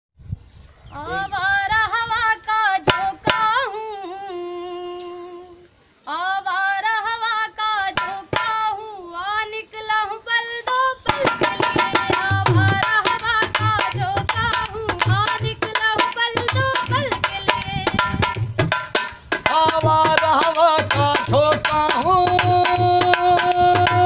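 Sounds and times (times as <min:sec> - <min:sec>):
woman singing: 0:01.0 - 0:18.6, 0:19.4 - 0:24.0
dholak hand strokes: 0:11.1 - 0:24.0.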